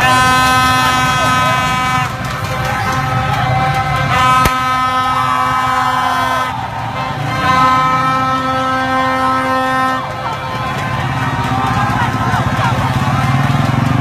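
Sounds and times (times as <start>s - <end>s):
people shouting: 0.0s - 13.8s
horn blasts: 0.0s - 14.0s
vehicle engines: 0.0s - 14.0s
sharp crack: 4.3s - 4.9s.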